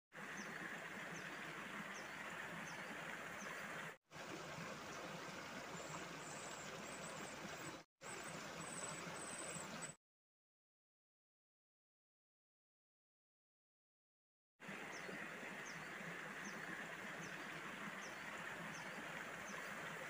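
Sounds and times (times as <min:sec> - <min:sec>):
birds chirping: 0:05.7 - 0:10.0
running water hiss: 0:14.6 - 0:20.0.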